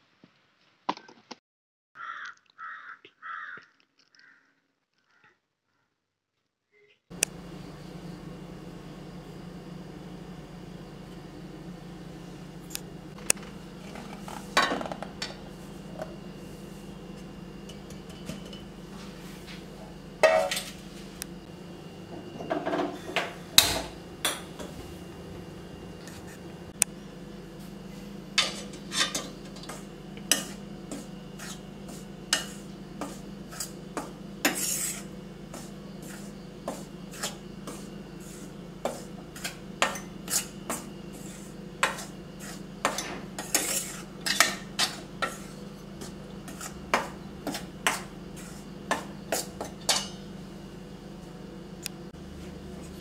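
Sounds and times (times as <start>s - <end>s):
low hum: 7.1s - 32.1s
spoon scraping metal pan: 28.4s - 33.8s, 34.4s - 50.2s.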